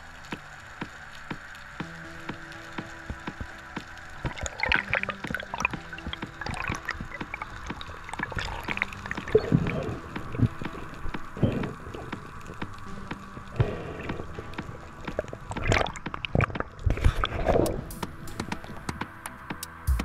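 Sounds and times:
water gurgling underwater: 0.0 - 19.0
sharp clicks and crackles: 0.0 - 19.8.

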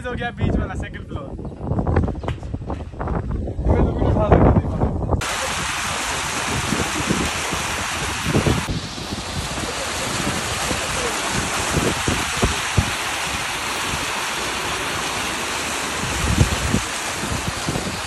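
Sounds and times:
fountain water splashing: 5.2 - 18.0.

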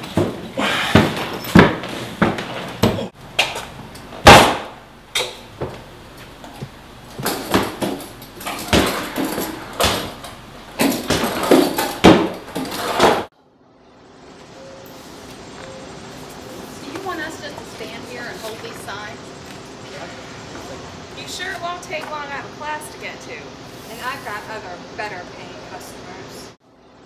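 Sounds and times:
suitcases knocking against steps: 0.0 - 3.7, 5.4 - 13.3.

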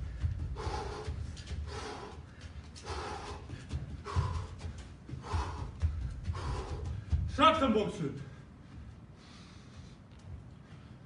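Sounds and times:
man breathing hard: 0.0 - 7.4, 8.2 - 11.0
soft thuds of footwork: 0.0 - 11.0.

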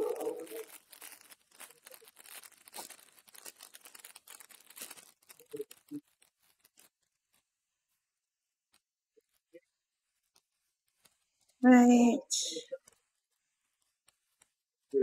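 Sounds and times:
foil wrapper tearing and crinkling: 0.0 - 8.0.

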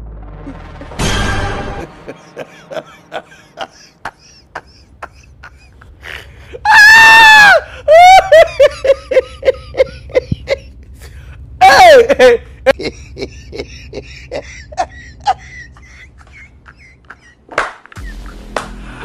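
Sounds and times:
woman laughing: 1.8 - 10.8, 11.6 - 17.5
woman screaming: 6.6 - 8.7, 11.6 - 12.4.

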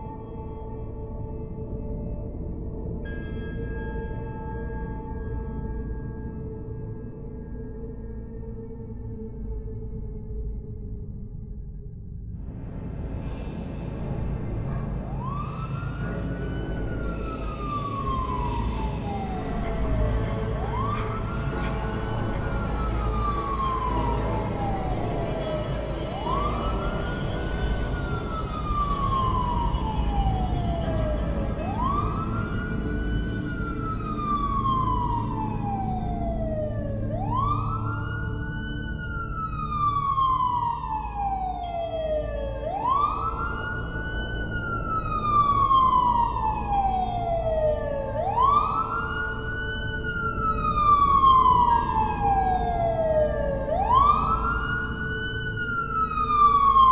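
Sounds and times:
wailing siren: 15.1 - 56.9.

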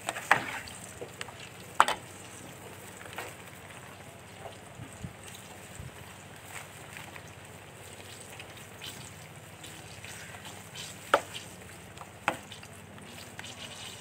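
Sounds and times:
fritters deep-frying in oil: 0.0 - 14.0
oil popping: 0.0 - 14.0.

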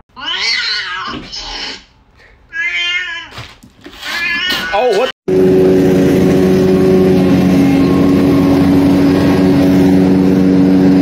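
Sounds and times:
lawn mower engine running: 5.3 - 11.0.

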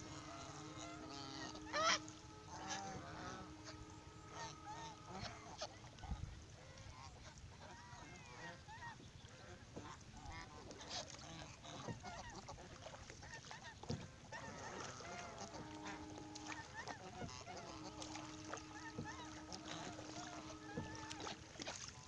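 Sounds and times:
geese honking: 0.0 - 22.0.

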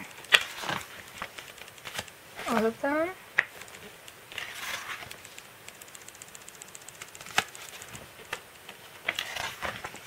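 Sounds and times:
paper rustling: 0.3 - 2.7, 3.6 - 5.3, 7.1 - 10.0.

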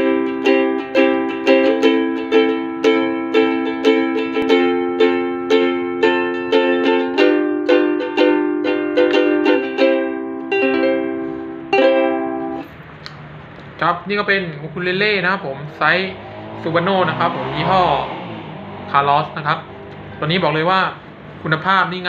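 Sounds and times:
ukulele strumming chords: 0.0 - 12.8.

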